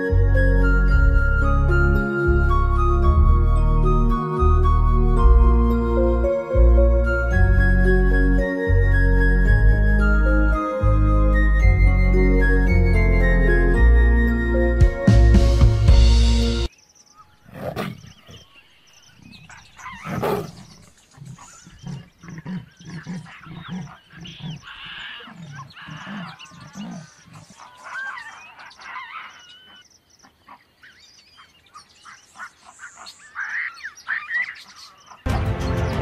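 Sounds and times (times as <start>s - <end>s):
birds chirping: 15.8s - 36.0s
big cat growling and snarling: 17.5s - 18.4s, 20.0s - 27.6s.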